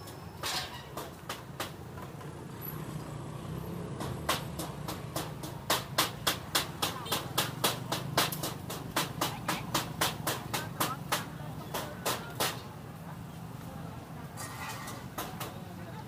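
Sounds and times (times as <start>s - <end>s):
sharp evenly spaced knocks: 0.8s - 2.3s, 3.9s - 12.7s
murmur of voices: 6.5s - 16.0s.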